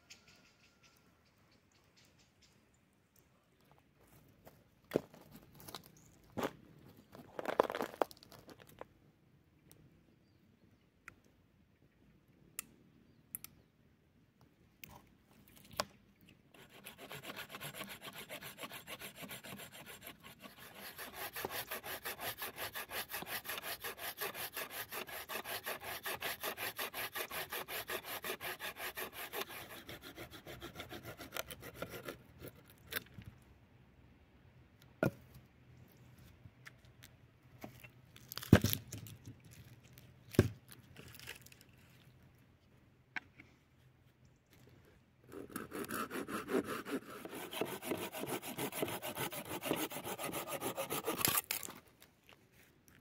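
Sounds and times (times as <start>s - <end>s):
hand saw cutting wood: 16.6s - 33.0s, 45.3s - 51.8s.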